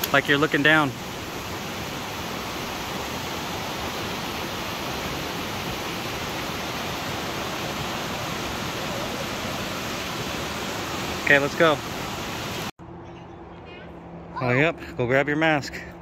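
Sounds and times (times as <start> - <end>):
waterfall rushing: 0.0 - 12.7.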